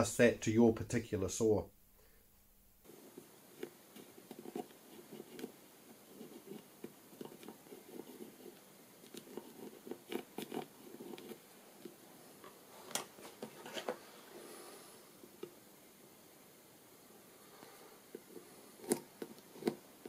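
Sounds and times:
pencil scratching on wood: 2.9 - 11.4, 18.1 - 19.8.

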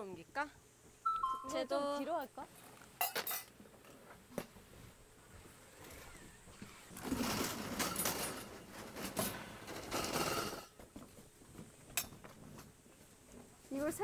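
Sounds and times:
metal frame clattering: 7.0 - 10.8.

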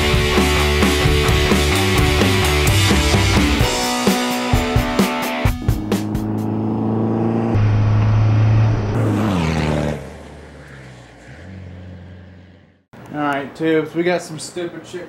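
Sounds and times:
car engine passing by: 5.8 - 12.9.

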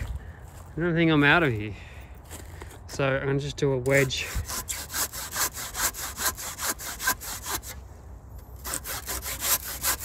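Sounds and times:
hand saw cutting tree trunk: 3.8 - 7.8, 8.5 - 10.0.

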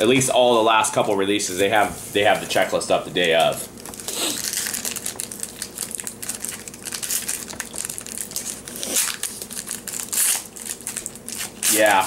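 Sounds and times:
wrapper crinkling: 3.7 - 12.0.

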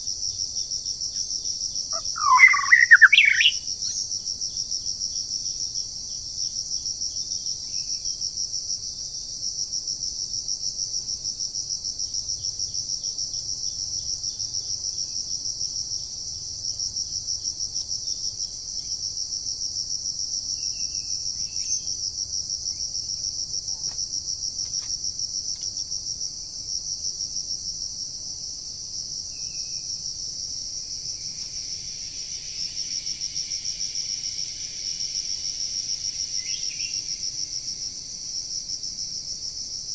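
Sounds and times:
insects trilling: 0.0 - 9.8, 10.5 - 39.9.

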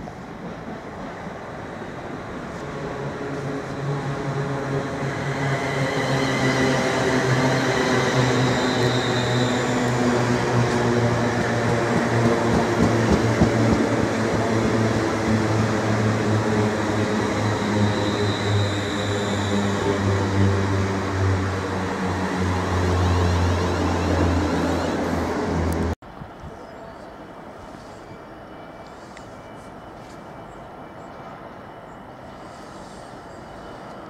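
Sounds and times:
electric train humming: 0.0 - 26.0.

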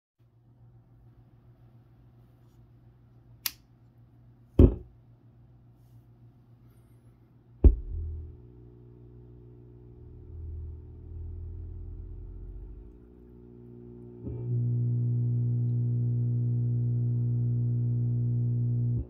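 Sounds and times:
amplifier low thumps: 4.6 - 4.8, 7.6 - 19.0
buzzy mains hum: 7.0 - 19.0
subwoofer switch click: 7.6 - 8.4.

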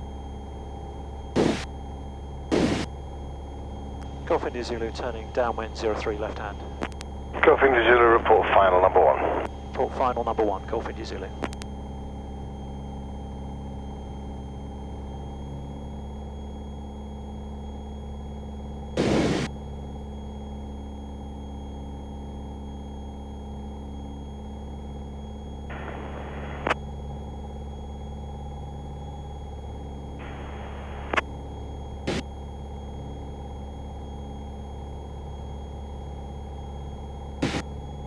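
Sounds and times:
loud burst of noise: 1.4 - 1.6, 2.5 - 2.9, 19.0 - 19.5, 37.4 - 37.6.

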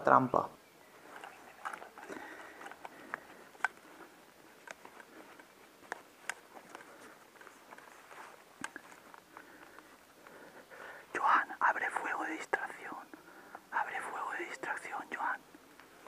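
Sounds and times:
rustling on dry leaves: 0.9 - 10.0
sharp clicks and snaps: 1.2 - 4.0, 4.6 - 7.9, 8.6 - 10.4.

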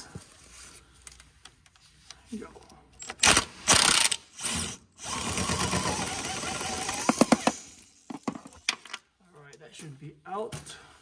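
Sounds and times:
power wrench running: 3.0 - 8.3.

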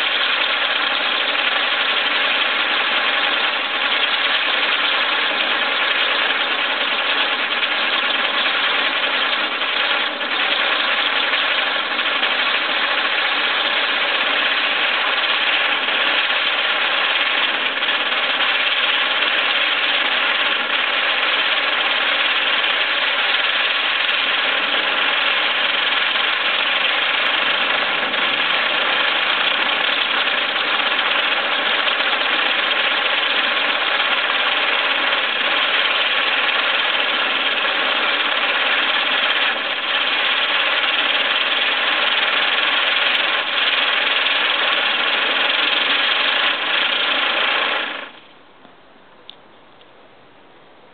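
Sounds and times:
spinning firework hissing buzz: 0.0 - 48.3.

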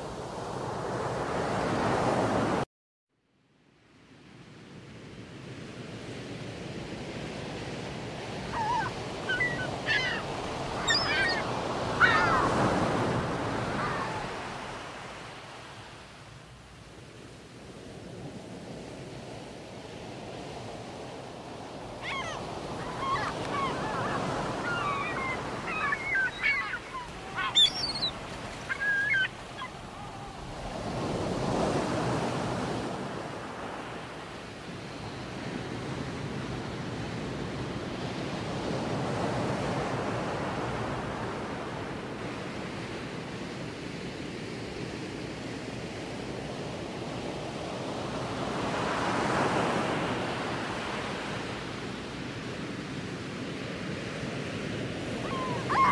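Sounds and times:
sea waves washing in: 5.2 - 55.9
bird calls: 8.4 - 14.5, 22.0 - 30.8, 55.1 - 55.9.

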